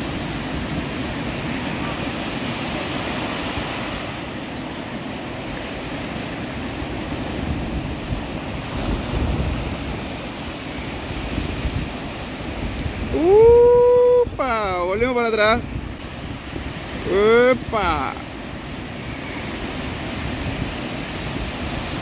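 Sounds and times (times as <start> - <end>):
surf breaking on beach: 0.0 - 22.0
wind buffeting microphone: 0.0 - 22.0
person shouting: 13.1 - 14.8, 17.0 - 18.2.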